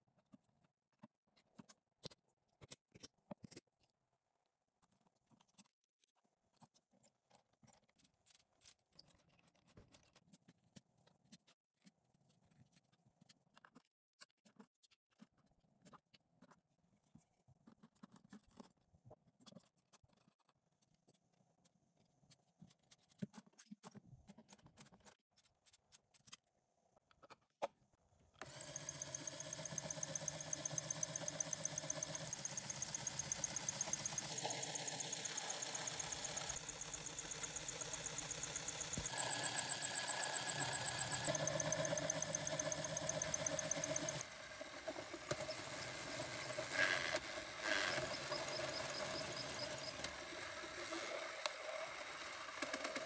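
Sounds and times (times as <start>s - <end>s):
plastic toy parts clicking: 28.4s - 44.2s
pulsing motor running: 28.4s - 53.0s.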